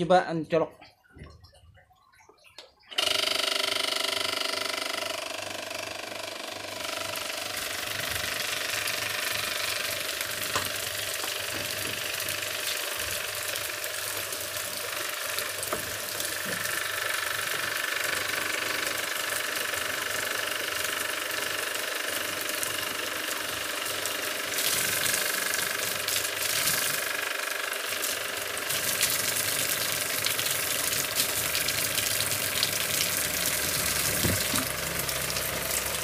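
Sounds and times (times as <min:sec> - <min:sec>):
water pump motor humming: 0:00.8 - 0:36.0
water splashing onto wood: 0:07.2 - 0:36.0.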